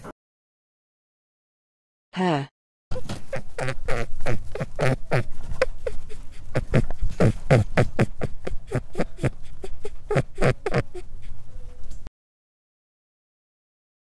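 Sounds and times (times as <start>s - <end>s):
guinea pig squeaking: 3.3s - 12.0s.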